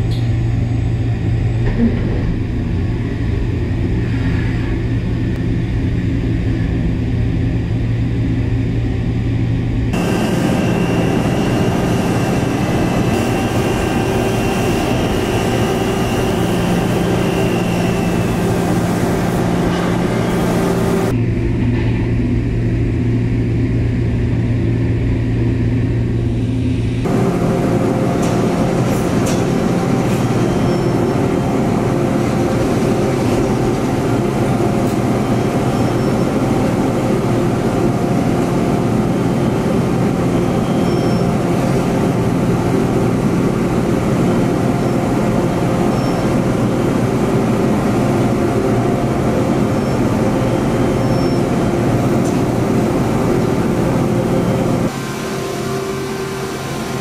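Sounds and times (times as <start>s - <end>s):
cnc machine cutting metal: 10.0s - 21.1s
faint high whine: 10.0s - 21.3s.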